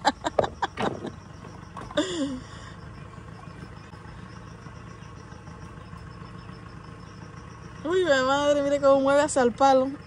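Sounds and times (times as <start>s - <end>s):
boat engine idling: 0.0s - 10.0s.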